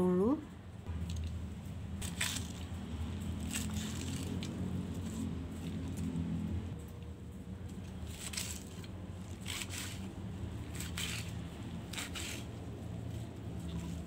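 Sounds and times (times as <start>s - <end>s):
knife crunching through cabbage: 2.0s - 6.4s, 7.8s - 14.0s.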